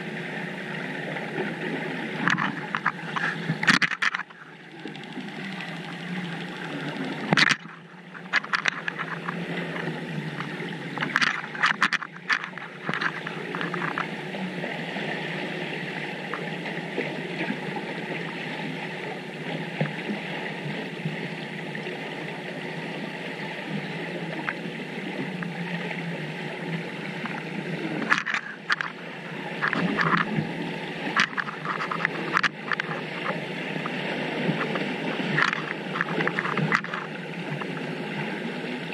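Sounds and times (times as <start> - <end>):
faint whine: 0.0 - 38.9
muffled underwater rushing: 0.0 - 38.9
crackling bubbling clicks: 2.1 - 14.4, 24.3 - 25.6, 26.8 - 37.9.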